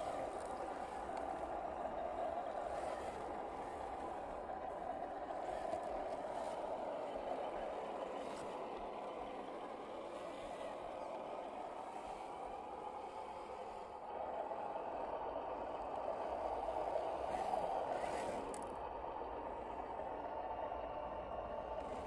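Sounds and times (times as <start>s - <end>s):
tyres scraping over soil: 0.0s - 11.3s, 17.3s - 18.8s
electric motor whirring: 16.2s - 18.8s.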